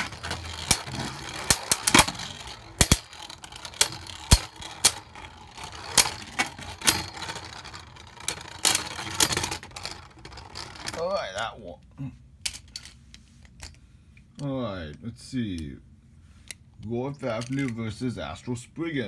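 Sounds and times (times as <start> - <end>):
plastic and metal clacks: 0.0 - 11.0
spinning tops whirring: 0.0 - 11.5.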